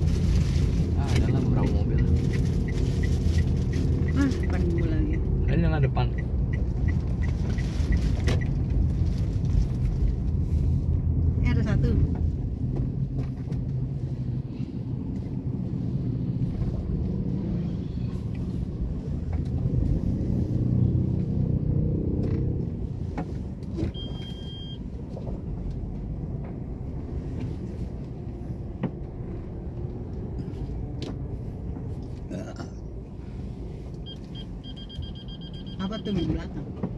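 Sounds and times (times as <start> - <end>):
moving vehicle rumble: 0.0 - 36.9
short electronic beep: 23.9 - 24.8, 34.1 - 36.4.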